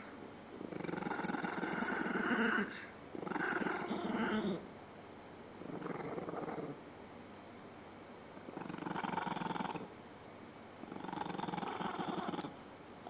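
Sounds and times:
small dog growling: 0.0s - 4.7s, 5.6s - 6.8s, 8.4s - 9.9s, 10.8s - 12.6s.

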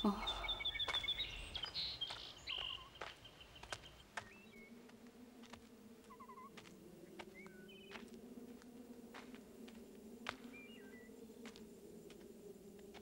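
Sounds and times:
bird chirps and trills: 0.0s - 4.7s, 7.4s - 8.0s
low buzzing drone: 3.3s - 13.0s.

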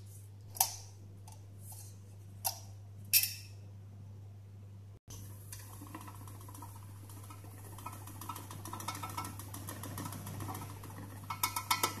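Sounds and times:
electric mixer humming and rattling: 5.2s - 12.0s.

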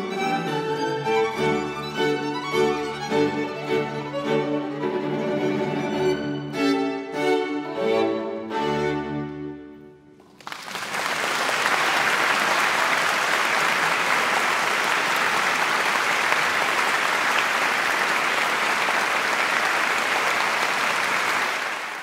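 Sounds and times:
audience applauding: 10.2s - 22.0s.

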